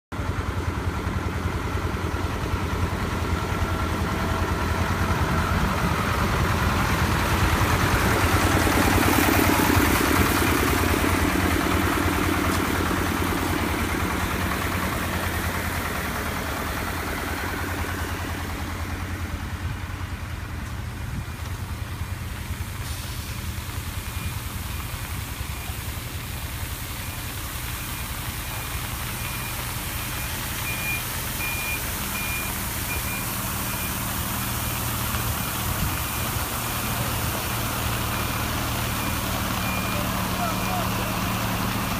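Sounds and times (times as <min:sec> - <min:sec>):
diesel engine running: 0:00.1 - 0:41.9
rushing hiss of spraying: 0:22.5 - 0:39.3
reversing alarm beeps: 0:26.8 - 0:36.6, 0:37.9 - 0:41.4.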